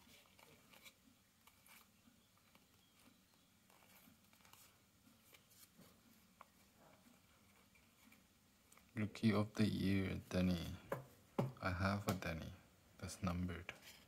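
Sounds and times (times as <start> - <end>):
trading cards being flipped: 0.0 - 3.1, 3.7 - 6.6.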